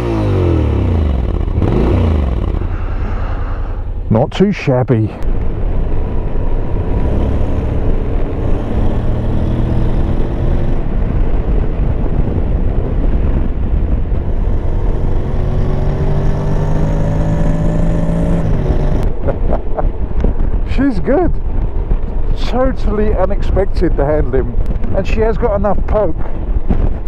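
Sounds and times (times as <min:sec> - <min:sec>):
motorcycle engine accelerating: 0:00.0 - 0:04.0, 0:05.3 - 0:19.9.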